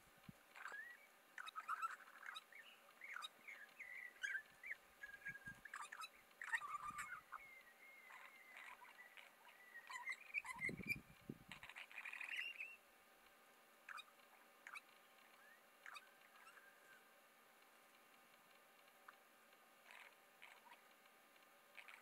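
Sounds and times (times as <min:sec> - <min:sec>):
bird whistling: 0:00.6 - 0:11.0, 0:11.7 - 0:12.8.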